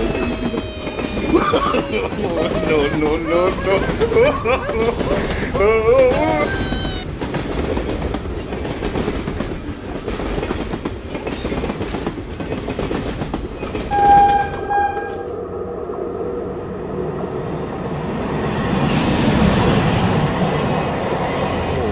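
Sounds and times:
train running on track: 0.0 - 21.9
train horn blast: 13.9 - 15.4.

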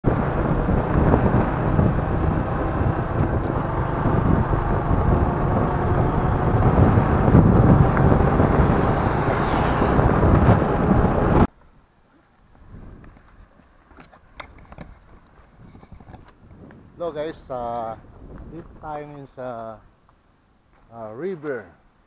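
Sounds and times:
motorcycle engine noise: 0.0 - 11.5
road noise: 0.0 - 22.0
wind buffeting microphone: 0.1 - 11.5, 12.5 - 19.4.

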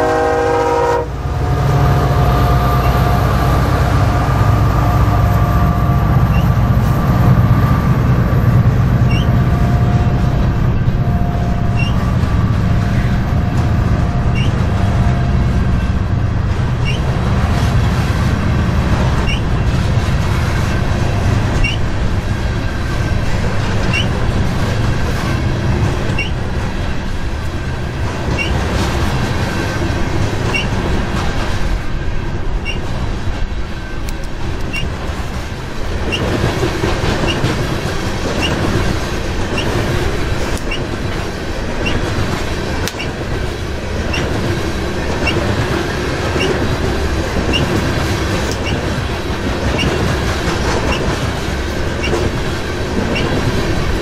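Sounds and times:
train rumble: 0.0 - 54.0
high wheel squeal: 5.3 - 7.9, 9.0 - 16.0, 16.8 - 17.1, 19.2 - 19.7, 21.5 - 22.0, 23.8 - 24.2, 26.0 - 27.0, 28.3 - 28.6, 30.4 - 30.8, 32.6 - 32.9, 34.7 - 34.9, 38.3 - 38.6, 39.6 - 39.8, 40.6 - 40.9, 41.8 - 42.1, 42.8 - 43.2, 45.2 - 45.6, 46.3 - 46.8, 47.4 - 47.8, 48.5 - 48.9, 49.8 - 50.0, 51.9 - 52.3, 53.1 - 53.9
wheels clattering over rail joints: 6.0 - 54.0.

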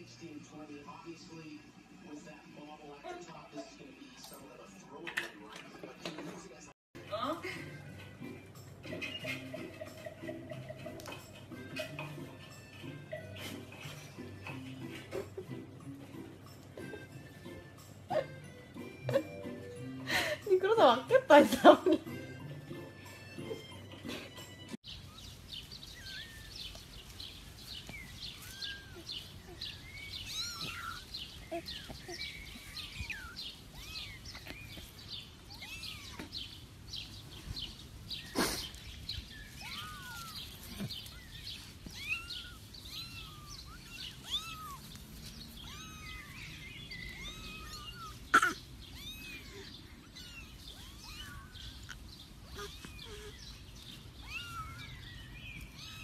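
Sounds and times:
birds chirping: 0.0 - 56.0
kittens mewing: 23.2 - 56.0.

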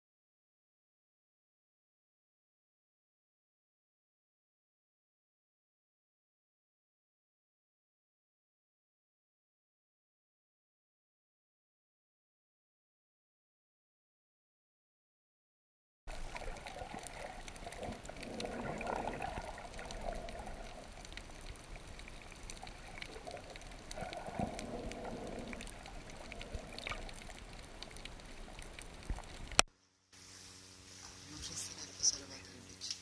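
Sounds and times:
muffled underwater sloshing: 16.1 - 29.6
faint clicks: 16.2 - 29.7.

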